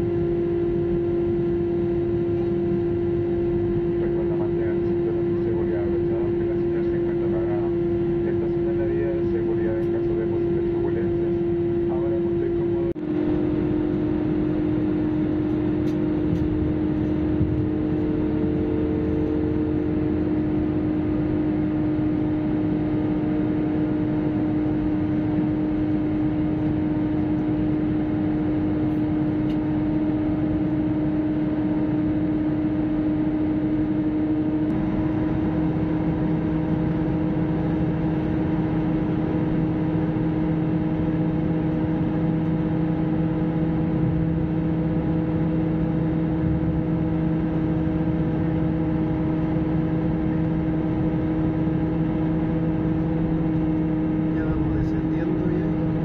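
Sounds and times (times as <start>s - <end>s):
jet airliner cabin drone: 0.0s - 56.0s
low hum: 0.0s - 56.0s.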